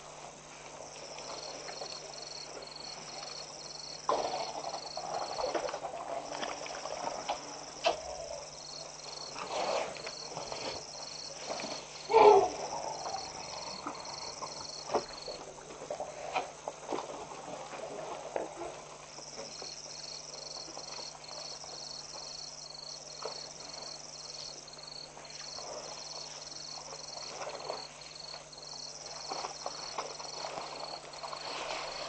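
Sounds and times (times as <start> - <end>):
elephants scuffing and splashing: 9.1 - 22.6, 23.2 - 32.0.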